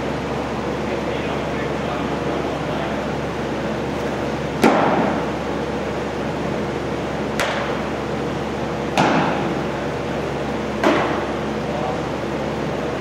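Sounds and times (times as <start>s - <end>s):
steady background hum: 0.0s - 13.0s
baseball smacking into mitt: 4.6s - 5.2s, 9.0s - 9.4s, 10.8s - 11.2s.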